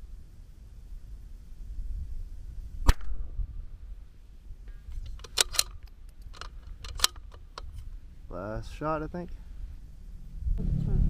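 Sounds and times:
rifle shot: 2.8s - 3.4s
rifle bolt clicks: 4.9s - 7.9s.

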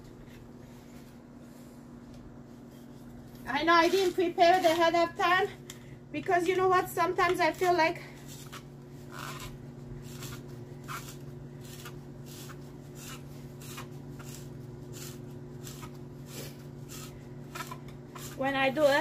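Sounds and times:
steady low hum: 0.0s - 19.0s
spiralizer scraping rasp: 3.5s - 5.4s, 7.4s - 19.0s.

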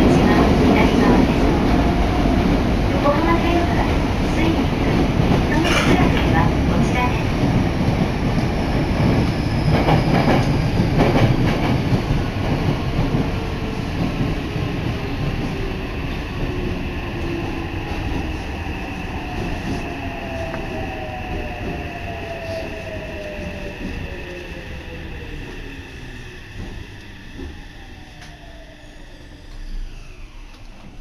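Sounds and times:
train rumbling through tunnel: 0.0s - 31.0s
rail-joint clacks: 5.2s - 7.1s.

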